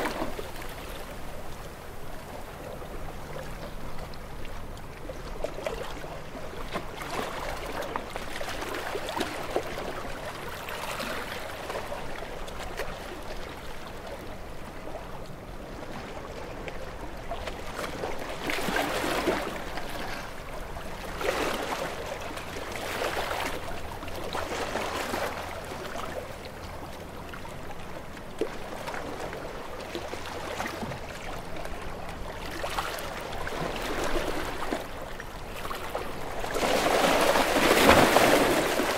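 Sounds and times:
waves splashing against concrete: 35.6 - 38.9.

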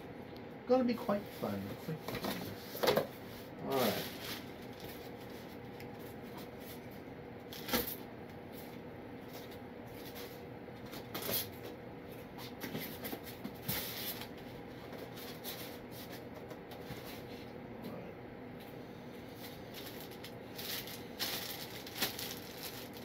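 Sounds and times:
plastic bag rustling: 3.8 - 5.6, 19.4 - 23.0.

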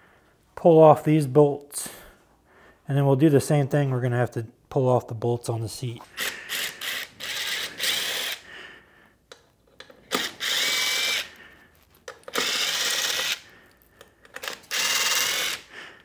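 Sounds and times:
power drill running: 6.2 - 8.4, 10.1 - 11.4, 12.2 - 13.4, 14.4 - 15.7.

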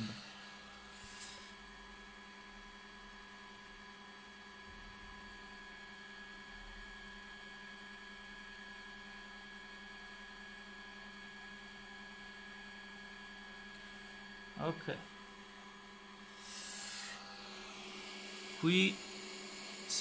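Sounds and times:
high whining tones: 16.3 - 20.0.

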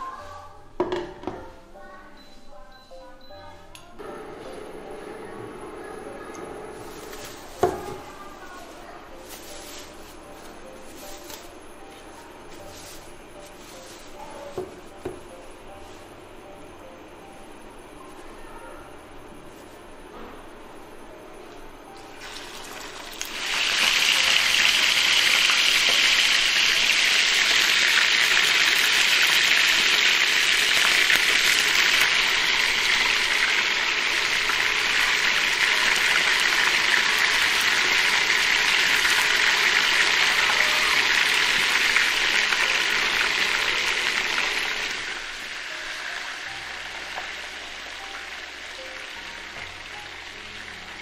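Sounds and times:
chicken sizzling in a hot pan: 4.2 - 10.0, 22.0 - 51.0.

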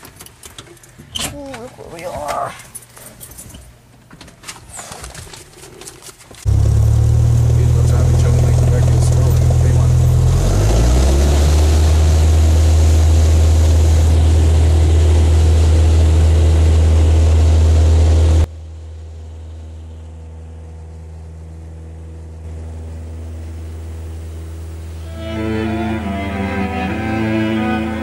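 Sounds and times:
aircraft engine and propeller drone: 6.5 - 25.0.

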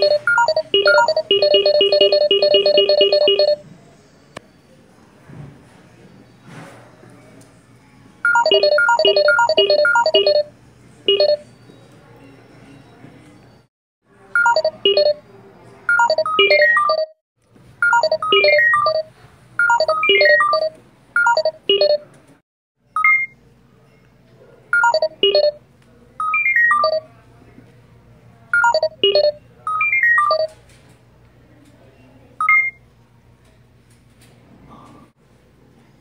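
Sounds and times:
bright electronic tune: 0.0 - 3.6, 17.8 - 20.7.

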